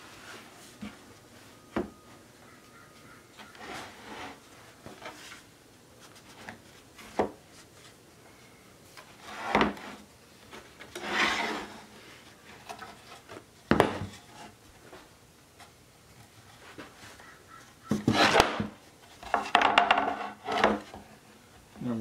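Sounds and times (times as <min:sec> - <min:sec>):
wooden boards scraping: 0:03.4 - 0:05.5, 0:09.1 - 0:14.6, 0:17.8 - 0:21.1
wooden boards knocking: 0:17.9 - 0:20.9.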